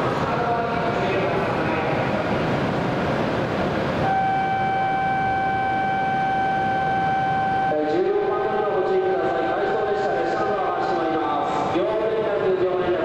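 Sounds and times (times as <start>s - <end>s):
steady rushing noise: 0.0s - 13.0s
single-pitched electronic tone: 4.1s - 7.8s.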